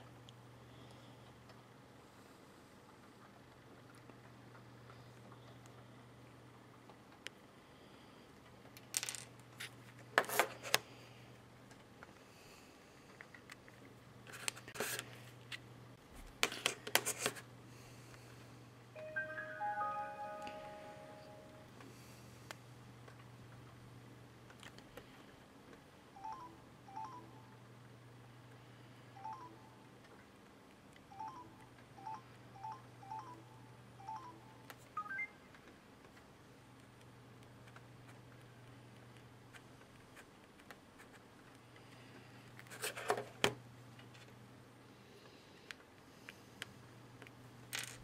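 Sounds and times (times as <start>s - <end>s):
power-up chime: 19.0s - 21.6s.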